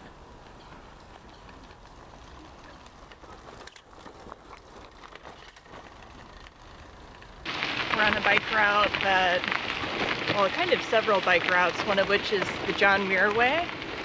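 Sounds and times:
faint clicks and rattles: 0.0 - 7.5
bicycle tyres on gravel: 0.0 - 14.0.

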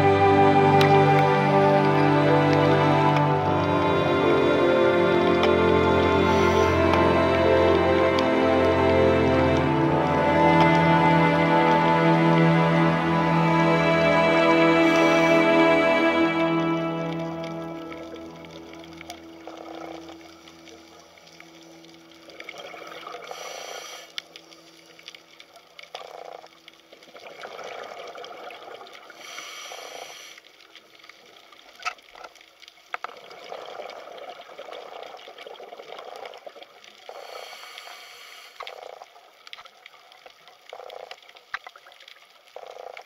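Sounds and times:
diver inhaling through regulator: 23.3 - 24.2, 29.2 - 30.4, 37.1 - 38.7.

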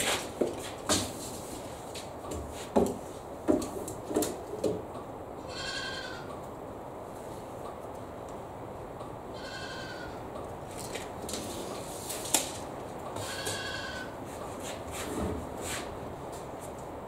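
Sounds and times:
goat bleating: 5.4 - 6.3, 9.3 - 10.2, 13.2 - 14.2.

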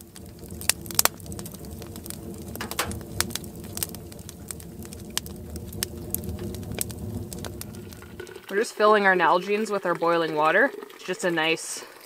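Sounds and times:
low steady rumble: 0.0 - 8.6
wood stove crackling and popping: 0.0 - 11.8.

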